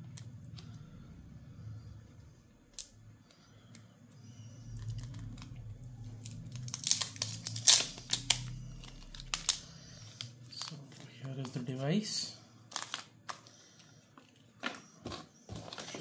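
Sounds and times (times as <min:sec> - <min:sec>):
plastic wrap crinkling: 0:04.7 - 0:13.5.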